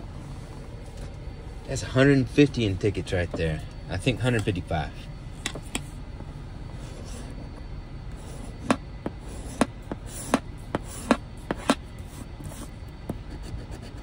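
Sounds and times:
coin scratching a lottery ticket: 13.3 - 14.0.

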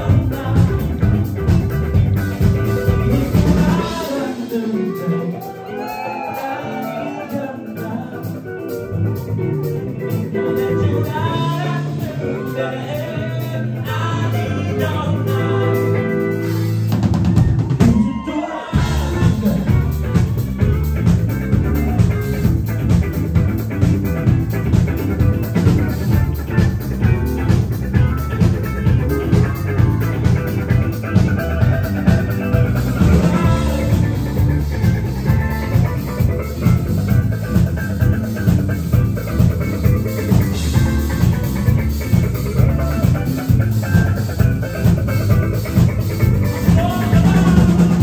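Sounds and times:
held bass: 0.0 - 4.8, 7.6 - 48.0
person singing: 0.0 - 9.5, 10.1 - 16.8, 17.7 - 20.6, 28.4 - 36.9, 39.9 - 48.0
drums: 0.0 - 48.0
live band playing: 0.0 - 48.0.

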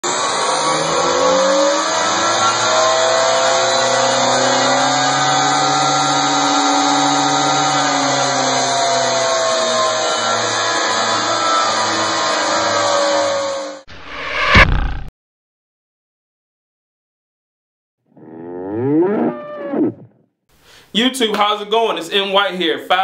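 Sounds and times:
motor-like drone: 0.0 - 14.6.

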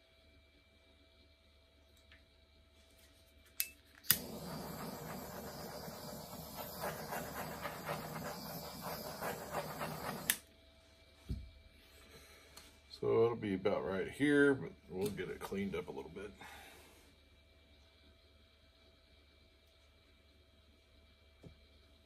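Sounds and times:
igniter clicks: 4.0 - 10.4
torch flame hissing: 4.0 - 10.4.

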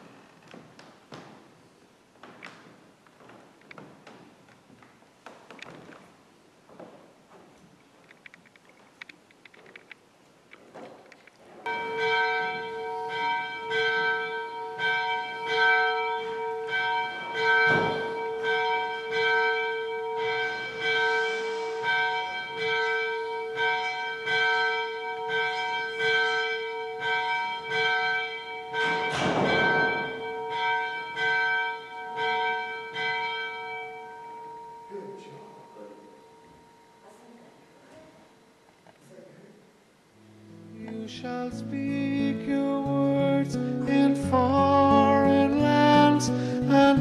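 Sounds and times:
church bell ringing: 11.6 - 37.2.

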